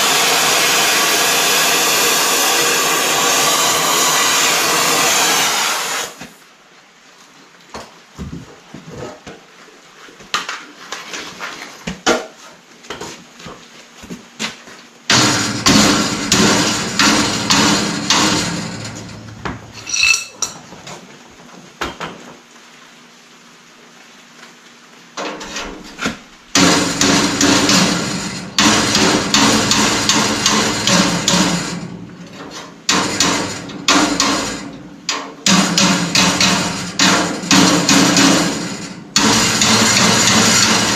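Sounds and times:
hammer striking steel: 15.1 - 20.6, 26.6 - 32.0, 32.9 - 40.9
metallic ring: 19.7 - 20.6.

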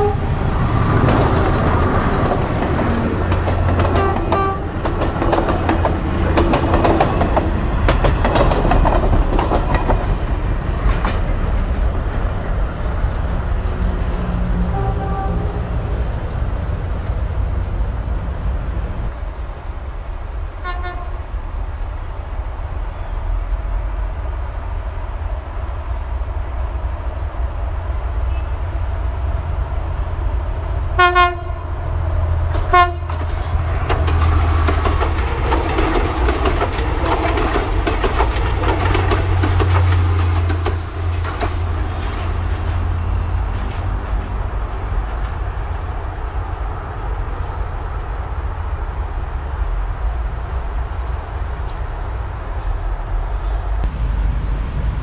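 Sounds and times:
train horn toots: 0.0 - 0.4, 3.9 - 4.8, 14.6 - 16.0, 20.6 - 21.2, 31.0 - 31.8, 32.6 - 33.2
wheels clattering over rail joints: 0.0 - 12.3, 32.5 - 44.4
diesel train engine rumble: 0.0 - 55.0.

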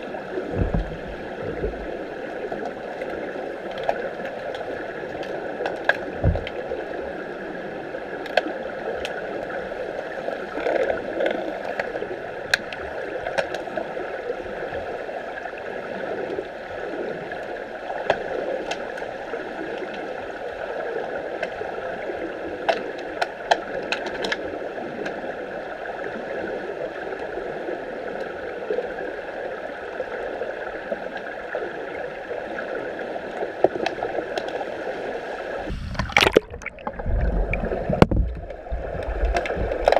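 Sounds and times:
muffled underwater rush: 0.0 - 22.7, 29.5 - 39.9
low thump: 0.5 - 1.1, 35.7 - 38.5
sharp clicks and knocks: 37.9 - 39.9.

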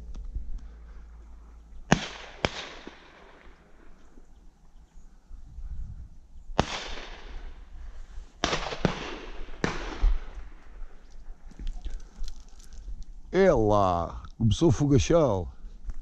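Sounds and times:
shotgun shots with echo: 1.9 - 3.6, 6.6 - 7.6, 8.4 - 10.6.

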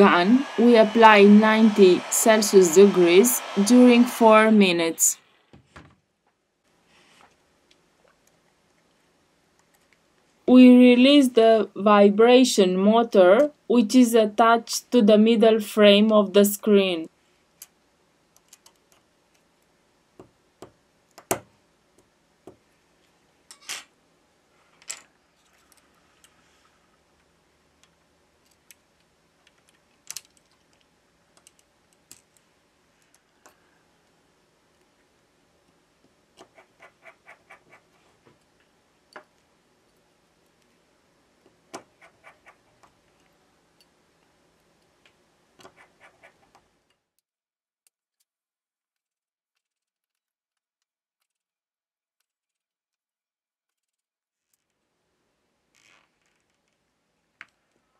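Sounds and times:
faint steady hum: 0.0 - 45.8.

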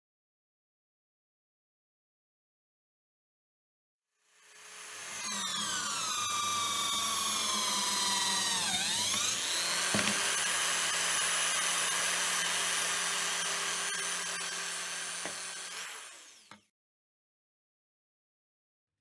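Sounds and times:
drill bit cutting wood: 4.3 - 16.7
electric drill motor whining: 4.4 - 16.7
knock: 9.9 - 10.2.

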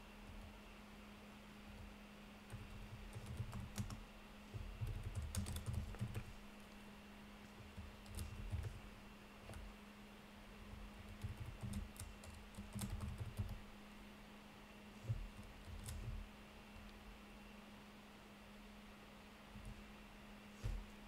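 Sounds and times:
steady low hum: 0.0 - 21.0
typing on a keyboard: 2.5 - 4.0, 4.8 - 6.3, 7.8 - 8.8, 11.1 - 13.6, 15.4 - 16.2.

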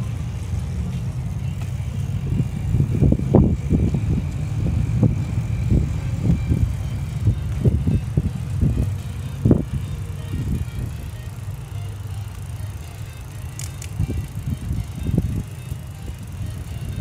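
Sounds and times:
wind buffeting a microphone: 0.7 - 11.1, 13.9 - 17.0.

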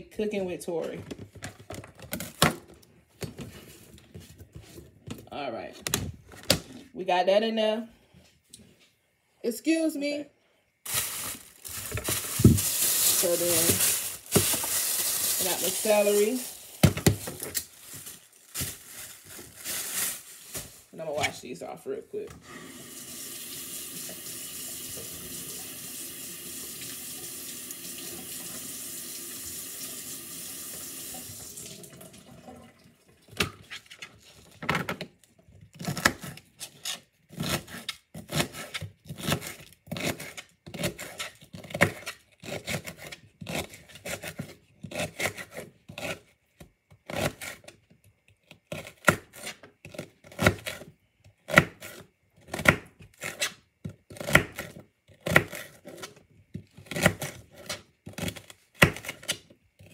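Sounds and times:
kitchen tap running: 22.4 - 33.2.

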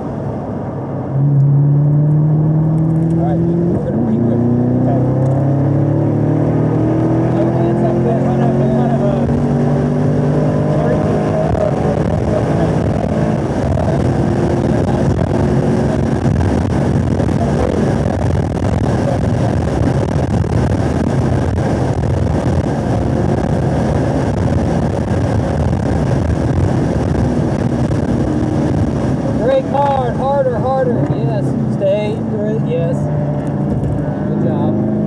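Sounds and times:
car engine at high revs: 0.0 - 35.0
wind noise: 0.0 - 35.0.

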